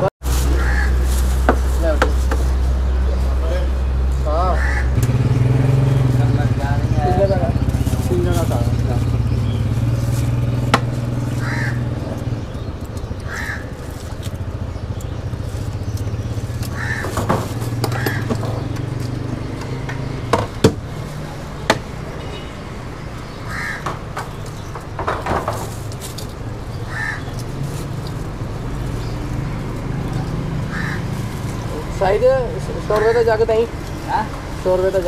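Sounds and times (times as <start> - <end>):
crows cawing: 0.5 - 1.2, 4.3 - 5.0, 11.3 - 12.3, 13.2 - 14.4, 16.6 - 18.7, 23.2 - 24.2, 26.7 - 27.6, 30.5 - 31.6, 32.9 - 33.7
sharp knocks: 10.6 - 11.1, 19.6 - 20.9, 21.6 - 22.0, 23.8 - 25.8.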